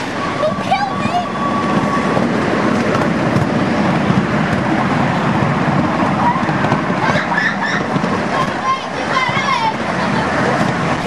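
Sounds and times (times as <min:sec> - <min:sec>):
miniature train rumbling and rattling: 0:00.0 - 0:11.0.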